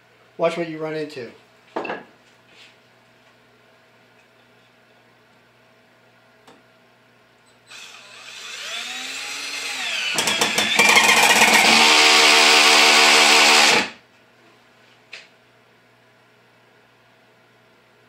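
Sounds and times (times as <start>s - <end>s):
drill clutch ratcheting: 7.7s - 13.9s
drill motor whirring: 7.7s - 14.0s.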